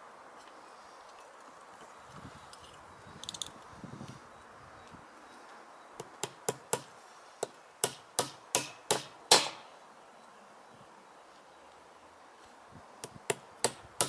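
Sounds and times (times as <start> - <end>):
hammer striking nail into metal: 7.8 - 9.6.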